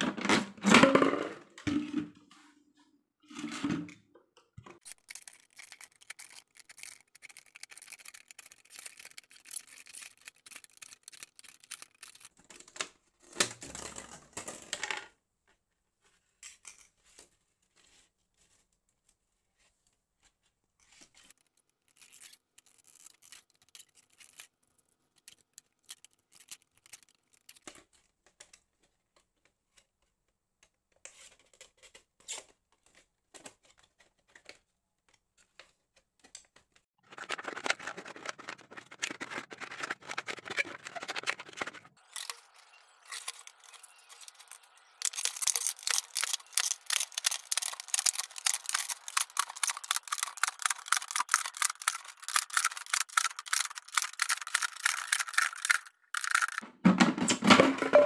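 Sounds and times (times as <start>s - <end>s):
knife sawing plastic: 37.0s - 42.5s
plastic crinkling and tapping: 43.2s - 56.7s.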